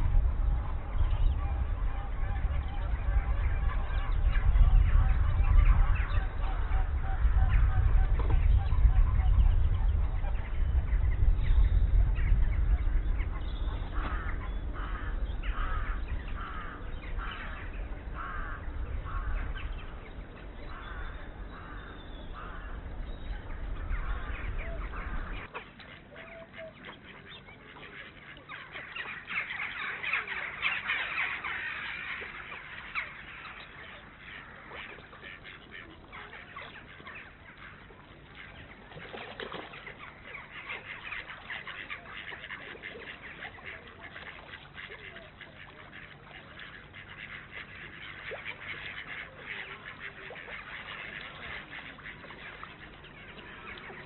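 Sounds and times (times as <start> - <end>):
low rumble: 0.0 - 25.5
ducks quacking: 0.0 - 54.0
waterfowl calling: 0.0 - 54.0.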